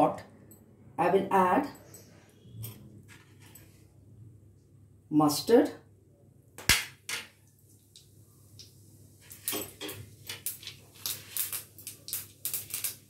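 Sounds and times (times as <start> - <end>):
seeds spluttering in hot fat: 10.3 - 13.0.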